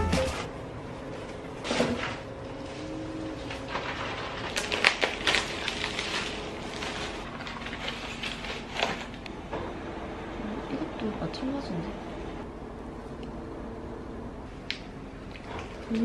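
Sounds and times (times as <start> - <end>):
bubble wrap crinkling: 3.3 - 9.2.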